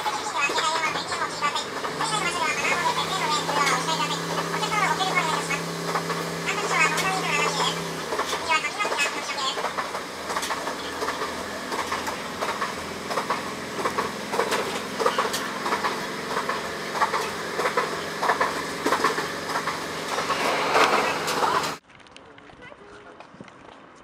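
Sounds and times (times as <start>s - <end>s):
train rolling rumble: 0.0s - 21.8s.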